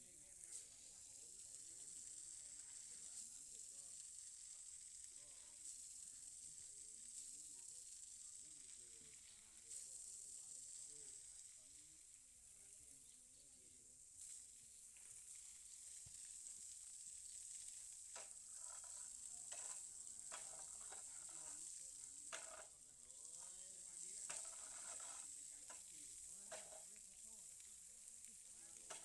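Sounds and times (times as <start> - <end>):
faint high hiss: 0.0 - 29.0.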